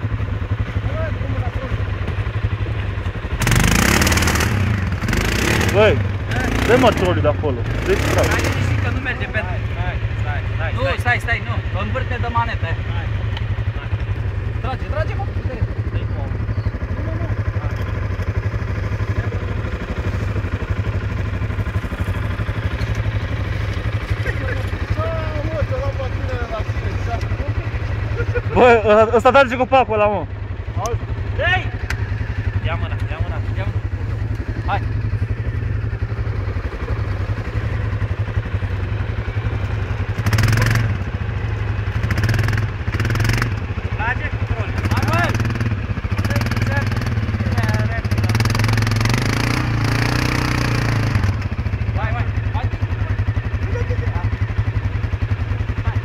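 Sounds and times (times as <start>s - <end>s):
atv engine running at low revs: 0.0s - 56.0s
quad engine revving: 3.0s - 9.5s, 36.0s - 56.0s.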